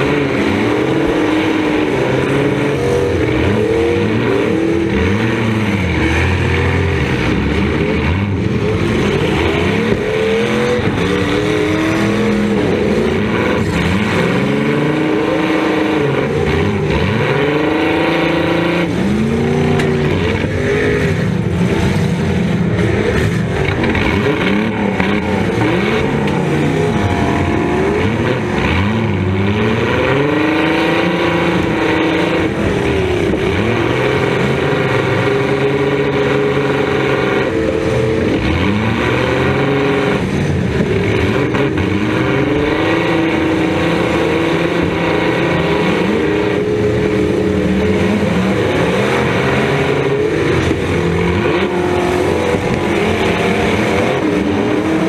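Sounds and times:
car engines revving: 0.0s - 55.0s.

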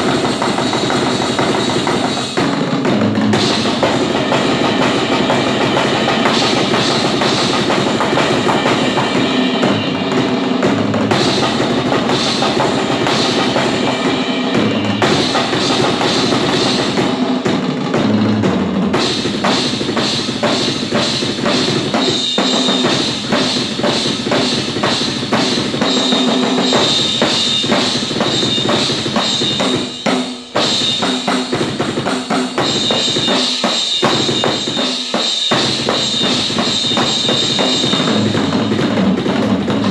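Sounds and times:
bass drum and snare: 0.0s - 39.9s
cymbals: 0.0s - 39.9s.

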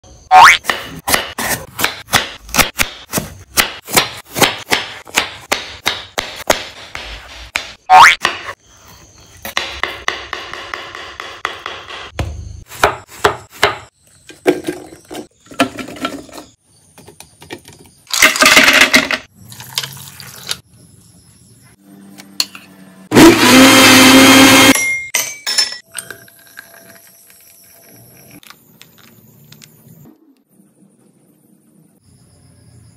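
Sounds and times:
knife chopping: 0.6s - 8.5s, 9.5s - 13.9s
ice cubes clinking in glass: 18.1s - 20.6s, 24.8s - 28.4s
blender running: 23.1s - 24.8s.

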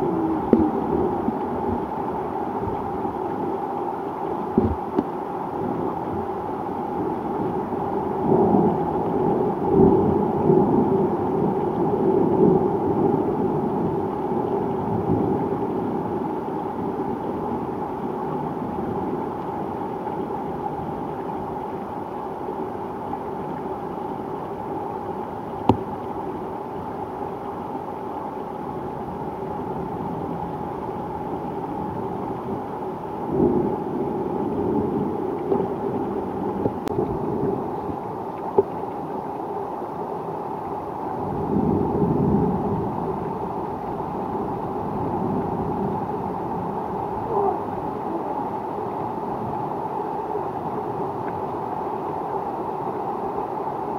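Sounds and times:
steady rain: 0.0s - 53.9s
rolling thunder: 41.2s - 47.2s.

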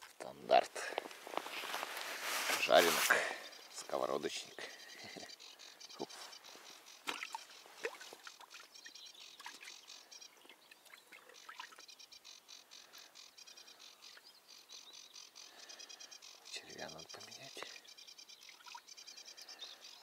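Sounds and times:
trilling animal calls: 1.6s - 14.2s.

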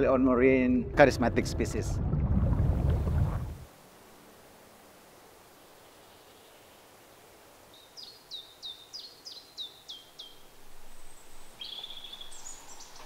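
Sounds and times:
faint forest ambience: 3.6s - 13.0s
bird calling: 7.7s - 13.0s.

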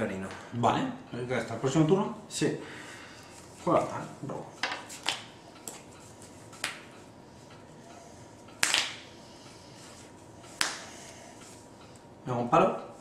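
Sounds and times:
playing cards snapping: 8.6s - 9.0s, 10.6s - 10.9s.

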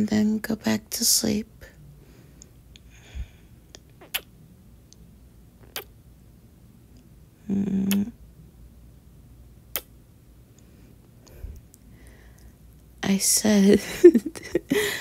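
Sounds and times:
woman's lip smacking kisses: 3.7s - 4.3s, 5.6s - 5.9s, 7.8s - 8.1s, 9.7s - 9.9s
woman humming mm: 7.4s - 8.2s.

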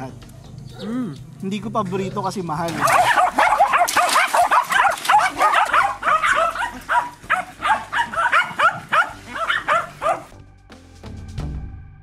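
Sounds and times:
dogs yapping: 2.0s - 10.3s.

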